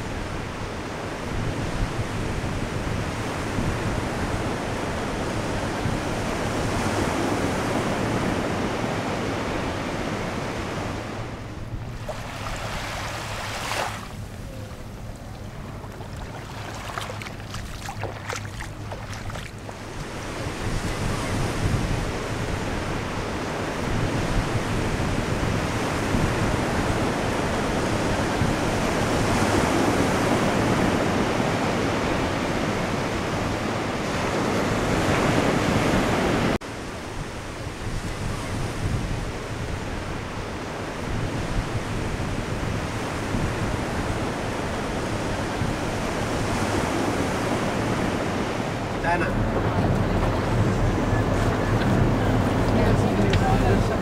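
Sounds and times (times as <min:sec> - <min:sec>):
ocean surf on beach: 0:00.0 - 0:54.0
wind buffeting microphone: 0:00.0 - 0:54.0.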